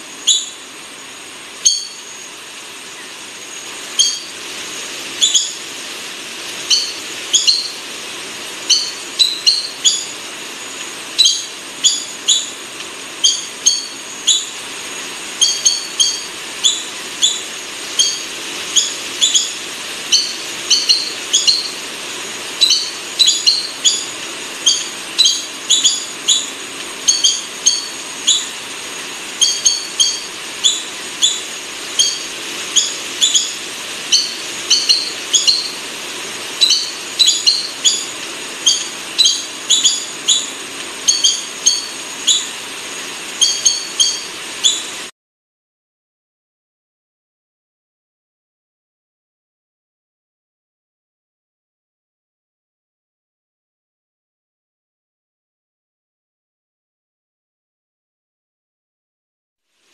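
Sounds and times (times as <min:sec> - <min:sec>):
rail bird calling: 0:00.0 - 0:45.1
steady hiss: 0:00.0 - 0:45.1.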